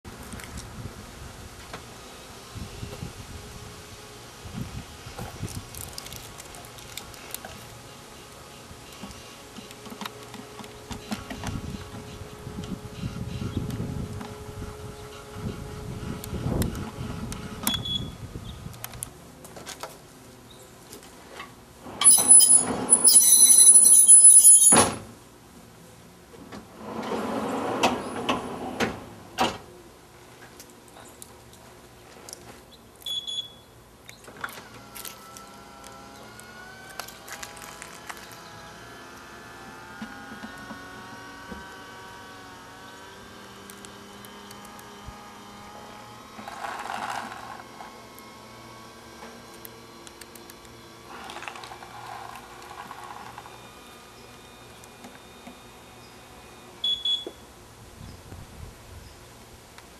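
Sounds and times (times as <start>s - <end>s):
electric tailgate motor running: 5.2s - 18.2s, 34.3s - 57.4s
short high beep: 22.1s - 24.8s, 33.1s - 33.6s, 56.8s - 57.4s.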